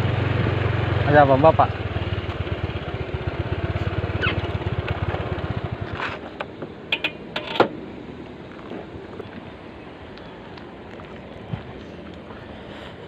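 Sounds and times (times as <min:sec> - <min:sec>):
scooter engine idling: 0:00.0 - 0:07.6.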